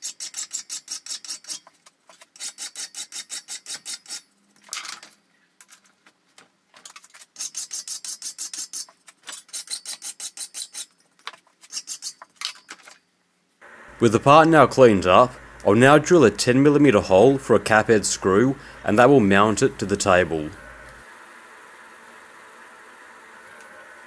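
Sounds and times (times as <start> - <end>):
hand file scraping steel: 0.0 - 4.3, 7.2 - 11.0, 11.6 - 12.6.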